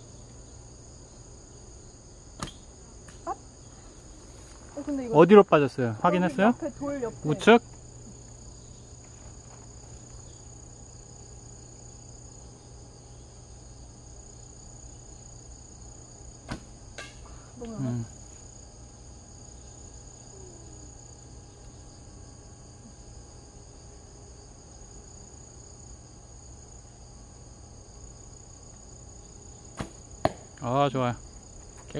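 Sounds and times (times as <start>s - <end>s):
insects chirring: 0.0s - 31.9s
arrow striking target: 2.4s - 2.6s, 16.4s - 17.2s, 29.8s - 30.5s
bowstring snap: 2.4s - 3.2s, 16.5s - 17.2s.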